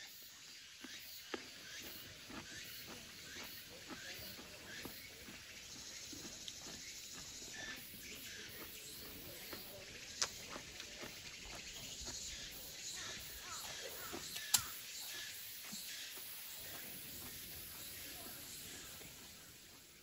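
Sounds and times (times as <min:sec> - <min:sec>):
insects chirring: 0:00.0 - 0:20.0
sharp clicks: 0:14.3 - 0:14.8.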